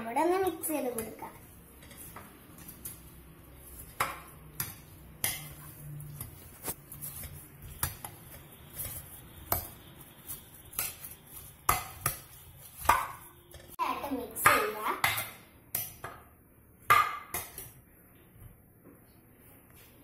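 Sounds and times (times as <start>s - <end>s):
scraping of wet fruit: 4.9s - 13.5s.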